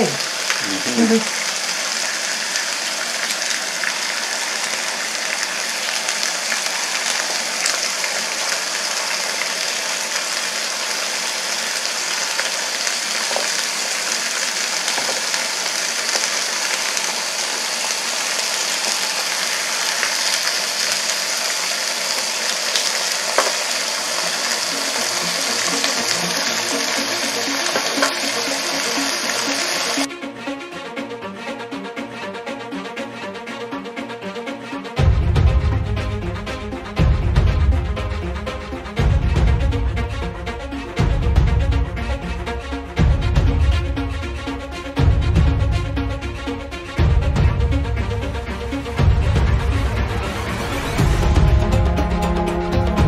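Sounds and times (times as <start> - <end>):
meat sizzling on a grill: 0.0 - 30.1.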